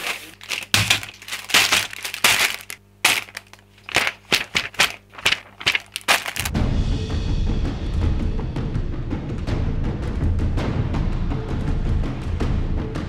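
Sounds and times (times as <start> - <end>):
plastic bags crinkling: 0.0 - 6.5.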